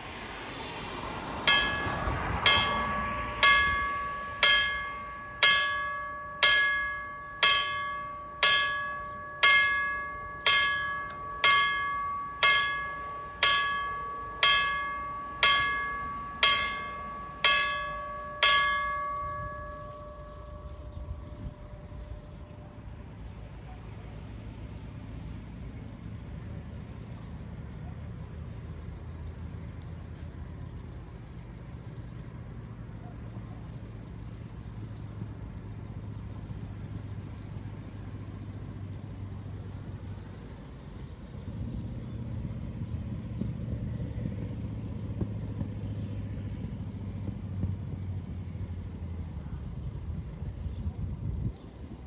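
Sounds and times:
faint road traffic: 0.0 - 52.0
level crossing warning bell: 1.1 - 25.4.

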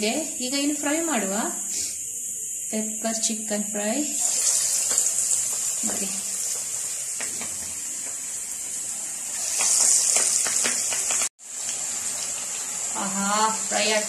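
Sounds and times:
chicken deep-frying in oil: 3.8 - 14.0.

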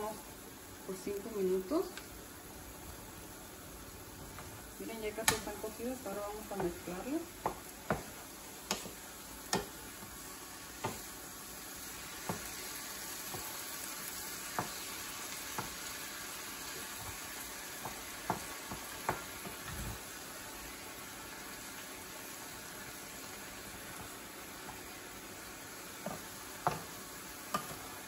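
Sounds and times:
vegetables sizzling in a skillet: 0.0 - 28.0
wooden spoon tapping pan: 5.2 - 5.8, 6.4 - 10.1, 10.8 - 11.1, 12.2 - 12.6, 14.5 - 14.8, 15.5 - 15.8, 17.8 - 19.6, 26.0 - 27.9.

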